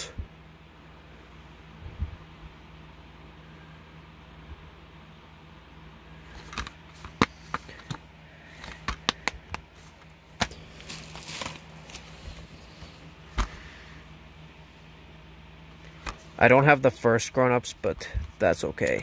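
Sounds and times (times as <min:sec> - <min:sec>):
plastic cases clicking shut: 0:08.6 - 0:09.6.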